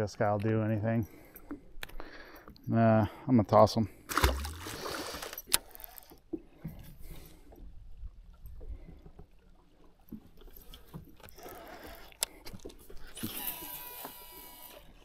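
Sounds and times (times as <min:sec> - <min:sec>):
water lapping against boat hull: 0:03.9 - 0:15.0.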